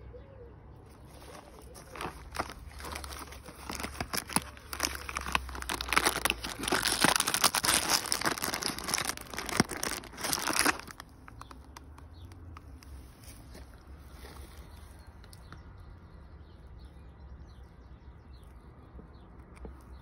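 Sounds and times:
packaging crinkling and tearing: 0:00.9 - 0:14.5.

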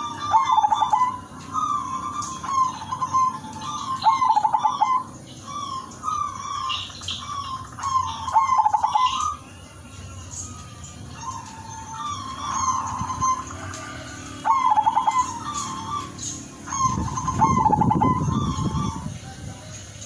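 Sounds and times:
dove cooing: 0:00.0 - 0:09.4, 0:11.1 - 0:19.7.

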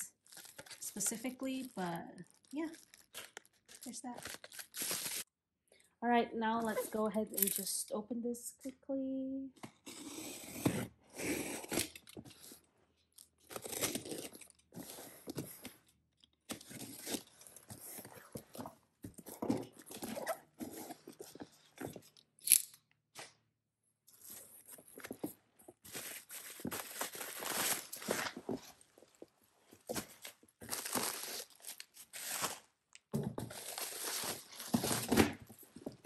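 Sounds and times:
bubble wrap crinkling: 0:00.0 - 0:05.3, 0:25.7 - 0:36.0.

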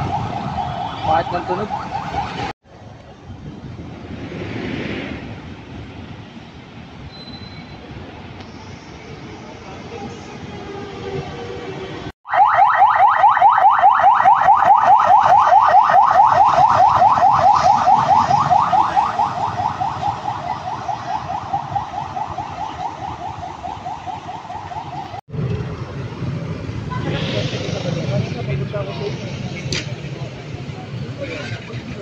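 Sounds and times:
ambulance siren yelping: 0:00.0 - 0:02.5, 0:12.2 - 0:25.2.

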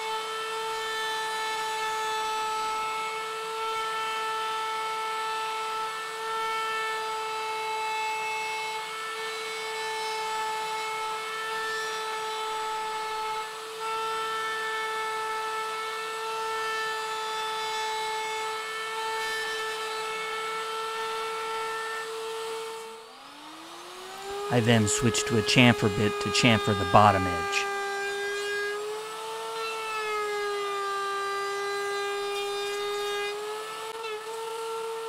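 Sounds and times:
router whining: 0:05.6 - 0:35.0.

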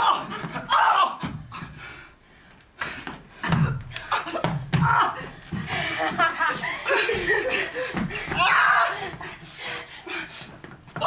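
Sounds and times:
people crying out and grunting: 0:00.0 - 0:01.8, 0:03.4 - 0:11.0
heavy breathing: 0:01.5 - 0:04.1, 0:05.2 - 0:10.8.

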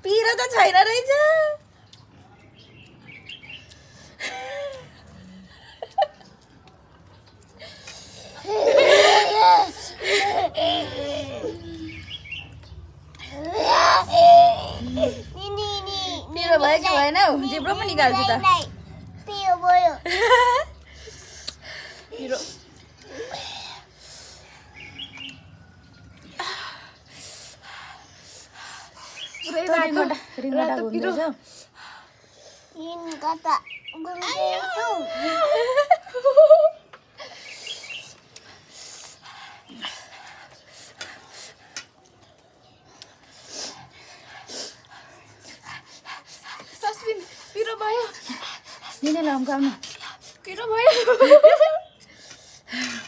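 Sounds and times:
people laughing: 0:08.4 - 0:11.9, 0:35.0 - 0:36.8, 0:50.8 - 0:51.9.

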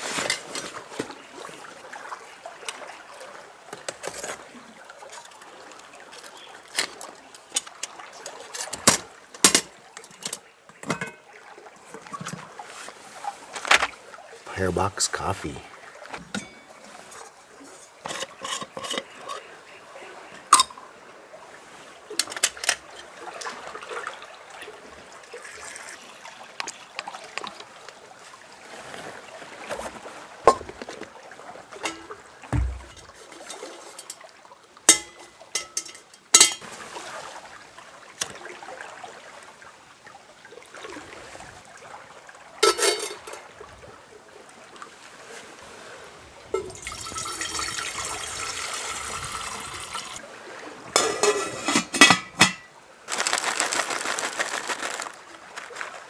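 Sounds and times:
liquid pouring: 0:25.3 - 0:27.6, 0:46.6 - 0:50.2
pot lid clinking: 0:34.9 - 0:36.6, 0:42.6 - 0:43.2, 0:51.0 - 0:52.7.

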